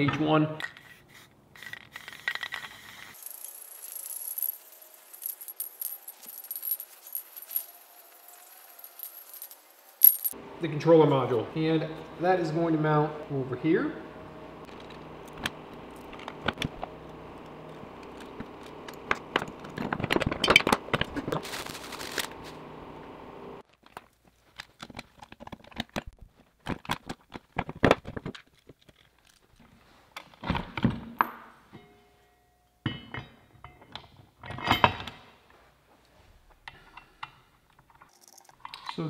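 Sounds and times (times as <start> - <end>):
steady background hum: 3.0 - 23.6.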